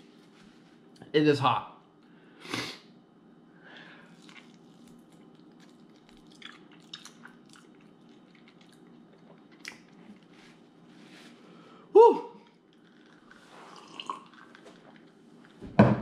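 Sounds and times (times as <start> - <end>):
faint chewing: 3.8 - 10.8, 12.4 - 15.6.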